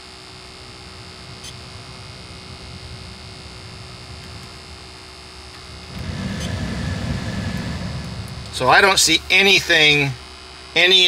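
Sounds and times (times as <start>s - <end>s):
blower fan rushing air: 0.0s - 11.0s
electrical hum with high whine: 0.0s - 11.0s.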